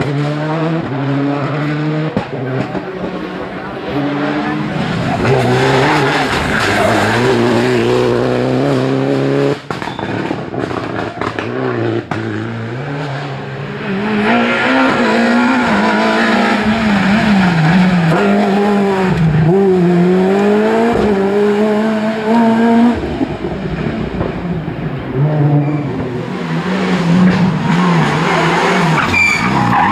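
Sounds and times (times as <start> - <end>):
rally car engine revving: 0.0 - 29.9
engine cracks and pops: 9.7 - 11.5.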